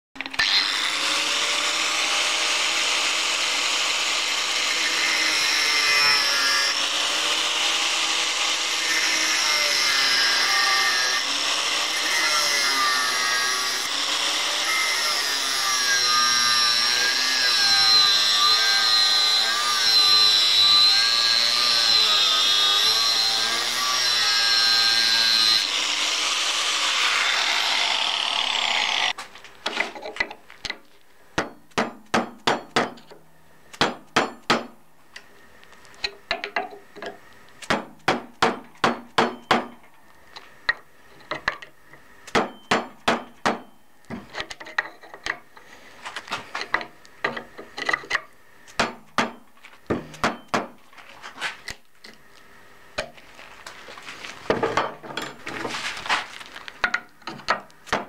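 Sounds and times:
angle grinder cutting metal: 0:00.3 - 0:29.2
hammer striking metal chisel: 0:31.4 - 0:33.2, 0:33.8 - 0:34.8, 0:37.7 - 0:39.8, 0:42.3 - 0:43.8.

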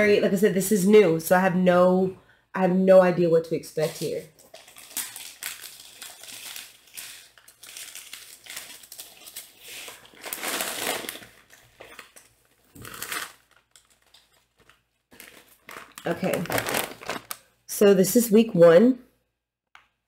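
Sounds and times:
paper rustling and crinkling: 0:03.8 - 0:17.4.

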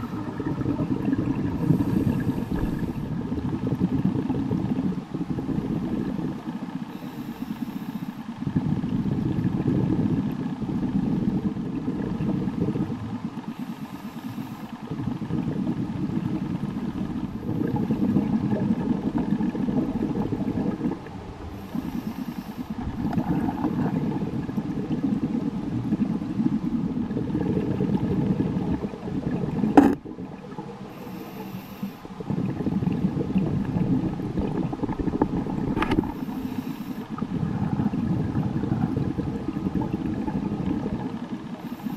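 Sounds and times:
exhaled bubbles underwater: 0:00.0 - 0:41.9
regulator hissing inhalations: 0:06.9 - 0:08.2, 0:21.5 - 0:23.9, 0:30.9 - 0:32.1, 0:36.1 - 0:37.2.

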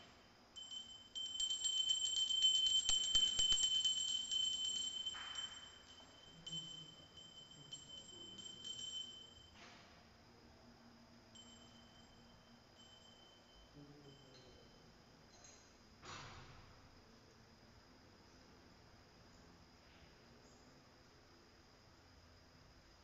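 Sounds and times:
small hand bell ringing: 0:00.0 - 0:09.6, 0:11.3 - 0:15.6.

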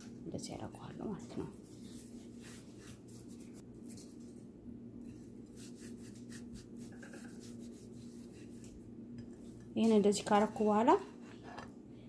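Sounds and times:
fingers rubbing seasoning into fish: 0:05.5 - 0:08.6.

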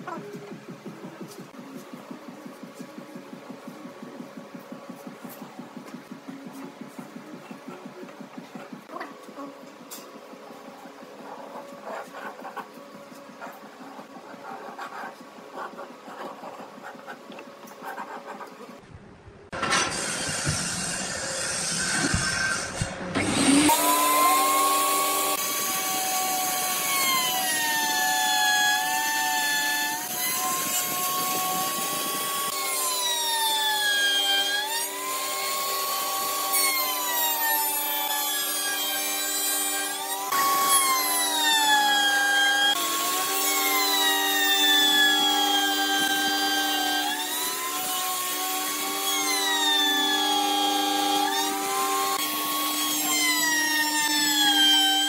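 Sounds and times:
wood router cutting wood: 0:19.8 - 0:55.0.

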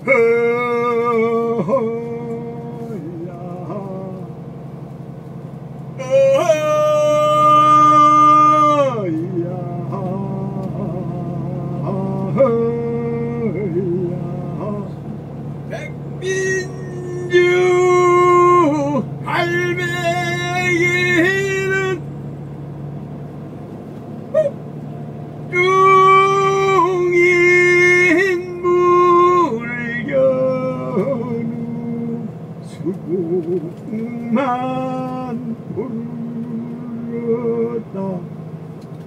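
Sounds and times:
moving vehicle hum: 0:00.0 - 0:39.0
person singing long notes: 0:06.0 - 0:14.9, 0:15.7 - 0:22.0, 0:25.5 - 0:32.2.

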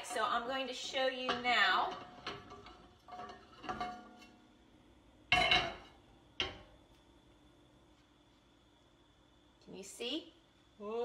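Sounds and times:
metal pan clanking on burner grate: 0:01.1 - 0:04.3.

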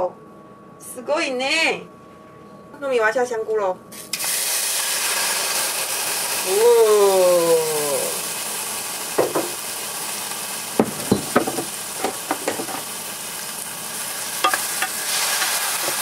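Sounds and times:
mushrooms sizzling in oil: 0:04.0 - 0:16.0
knocks and clinks: 0:10.8 - 0:11.6.

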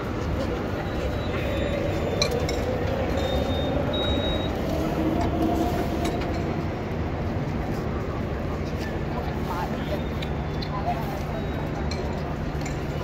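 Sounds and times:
card reader beeps: 0:03.2 - 0:04.6
people talking: 0:07.8 - 0:13.0.

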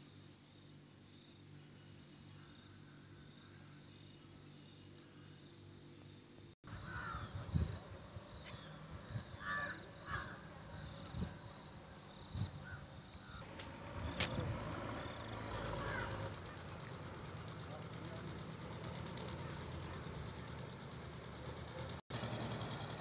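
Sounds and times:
crows cawing: 0:06.7 - 0:07.4, 0:09.4 - 0:10.9, 0:15.8 - 0:16.7.

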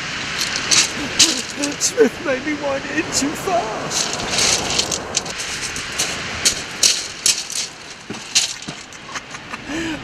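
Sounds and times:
wind blowing on microphone: 0:00.0 - 0:10.0
footsteps crunching on pebbles: 0:00.3 - 0:01.8, 0:03.9 - 0:09.0.

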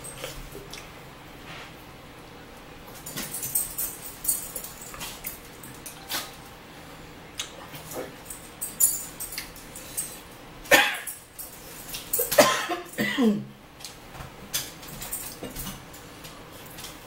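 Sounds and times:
chewing: 0:00.1 - 0:00.9.

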